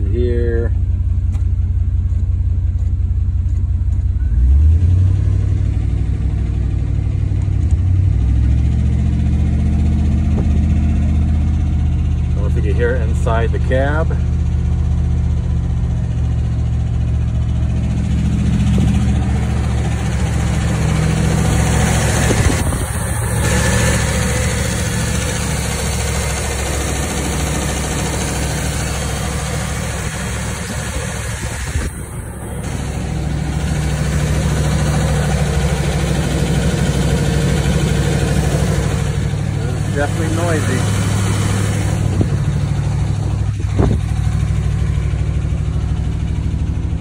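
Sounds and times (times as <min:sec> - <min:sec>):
pickup truck engine running: 0:00.0 - 0:47.0
engine lifter ticking: 0:09.3 - 0:47.0.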